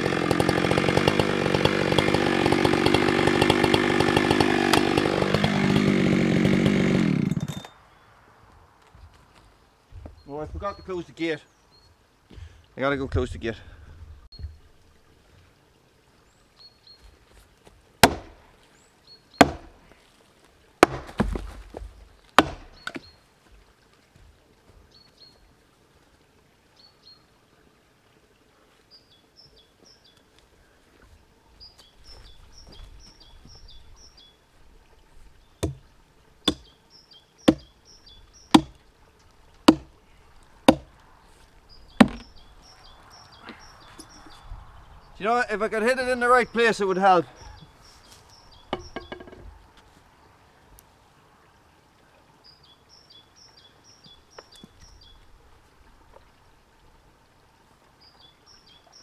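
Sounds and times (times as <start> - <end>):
maul striking wooden trunk: 0.0 - 7.7, 18.0 - 18.4, 19.4 - 19.8, 20.8 - 23.0, 35.6 - 36.7, 37.5 - 37.7, 38.5 - 38.8, 39.6 - 40.0, 40.6 - 41.0, 41.9 - 42.4, 48.7 - 49.5.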